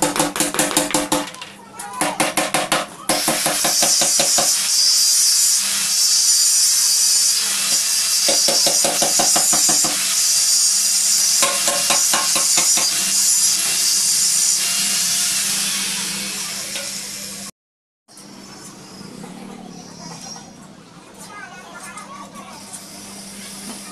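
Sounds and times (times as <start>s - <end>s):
angle grinder grinding metal: 3.2s - 17.5s.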